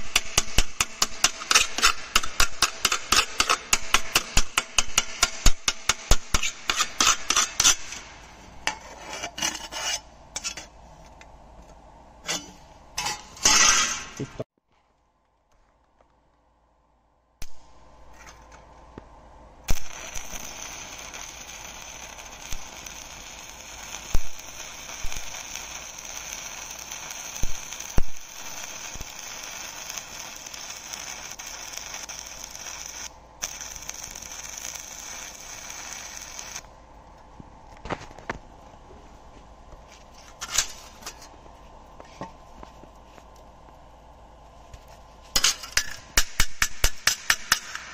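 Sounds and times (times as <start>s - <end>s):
welding arc pops: 0.0s - 8.1s, 17.4s - 17.8s, 19.7s - 36.7s, 45.4s - 47.9s
welding arc crackling hiss: 0.0s - 8.7s, 17.4s - 18.3s, 19.6s - 47.9s.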